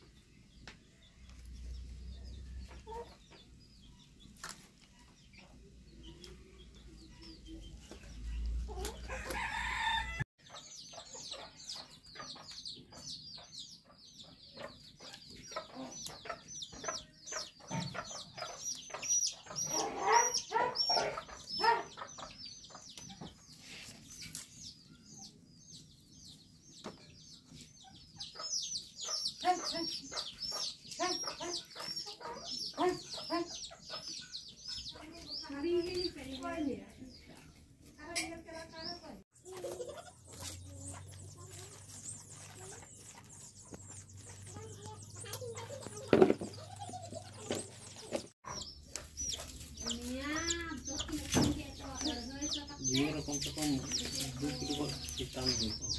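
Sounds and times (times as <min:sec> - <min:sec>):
chickens clucking: 0:00.0 - 0:55.9.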